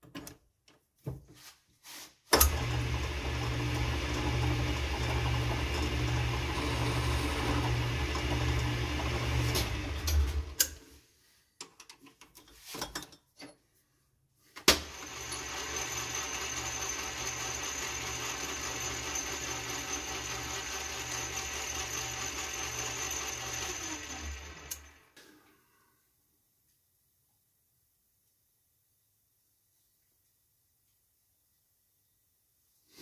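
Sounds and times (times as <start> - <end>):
metal lathe running: 2.5 - 10.6, 14.9 - 25.0.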